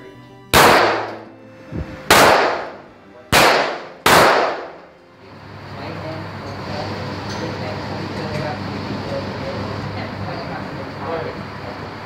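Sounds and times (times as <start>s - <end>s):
handgun shots echoing: 0.5s - 1.3s, 2.1s - 4.8s.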